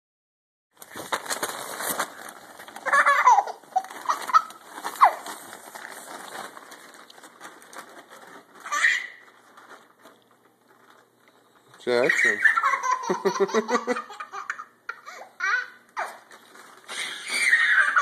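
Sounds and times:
tent fabric rustling: 0.9s - 11.2s.

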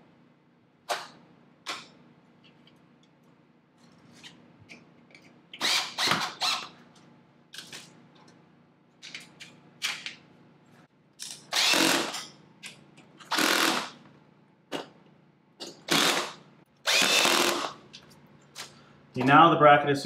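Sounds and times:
cordless drill running: 5.6s - 6.7s, 11.5s - 12.1s, 13.3s - 14.0s, 15.9s - 17.8s.

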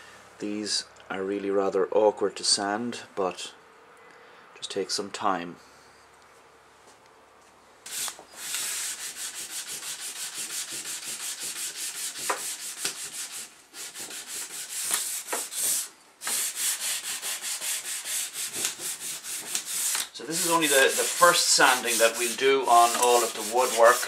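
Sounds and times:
sandpaper scraping wood: 7.9s - 24.0s.

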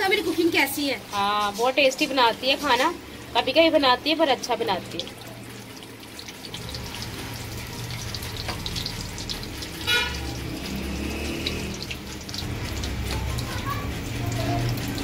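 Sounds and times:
chicken deep-frying in oil: 0.0s - 15.0s
oil crackles and pops: 4.9s - 15.0s.

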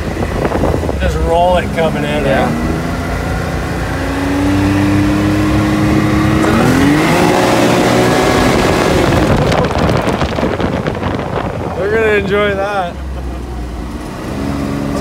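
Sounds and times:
engine running at low speed: 0.0s - 15.0s
rough rushing noise: 0.0s - 15.0s.

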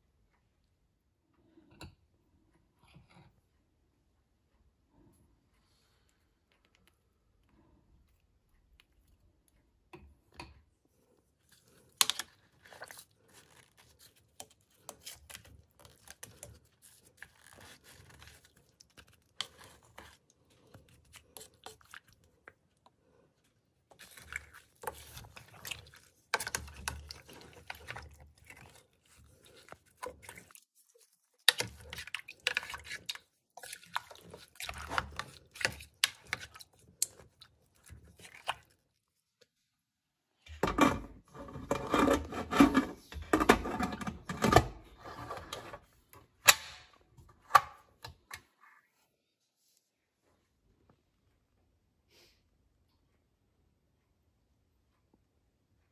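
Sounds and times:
wet squelching and scraping: 11.1s - 39.5s.

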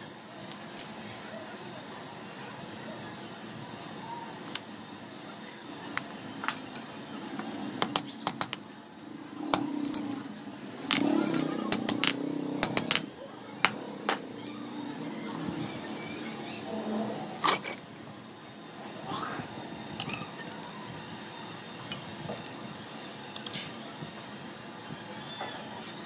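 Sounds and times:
metal tools clinking: 9.8s - 13.0s.

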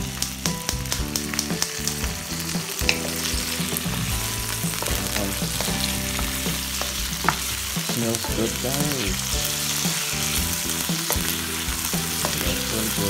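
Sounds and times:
food sizzling in hot oil: 0.0s - 13.0s
wooden spoon scraping a pan: 2.8s - 13.0s.

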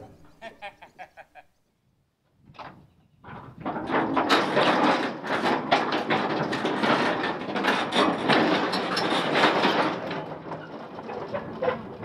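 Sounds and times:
crawler tracks clanking and rattling: 2.6s - 12.0s.

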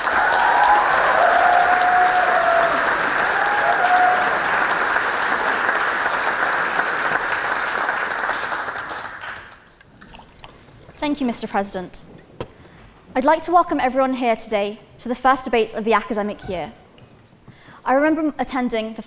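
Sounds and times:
large audience applauding: 0.0s - 9.8s.

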